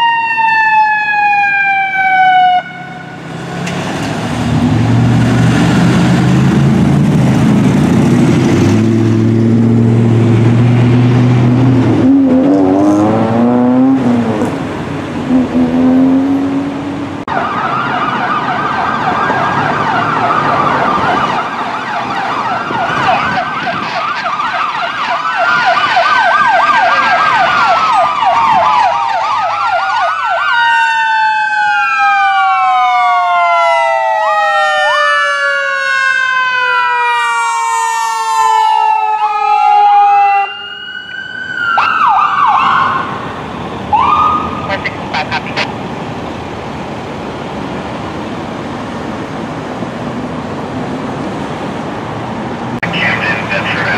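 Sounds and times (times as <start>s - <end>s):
electronic siren wail: 0.0s - 3.3s, 17.2s - 43.3s, 43.9s - 45.7s
warbling siren yelp: 0.0s - 3.3s, 17.3s - 43.3s, 43.9s - 45.7s.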